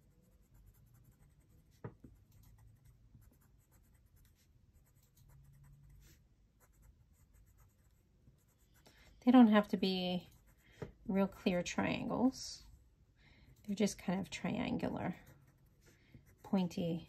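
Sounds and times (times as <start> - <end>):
pencil scribbling on paper: 0.0 - 10.8, 14.7 - 17.0.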